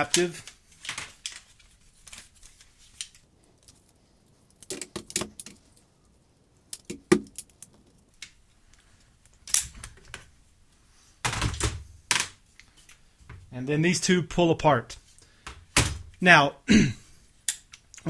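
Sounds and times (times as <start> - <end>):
rifle parts clicking and rattling: 0.0 - 5.9, 9.2 - 10.3.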